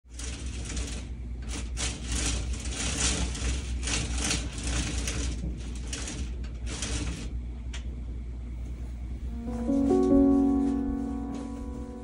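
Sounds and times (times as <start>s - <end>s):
steady low hum: 7.2s - 12.0s
fabric shade rustling: 9.3s - 12.0s.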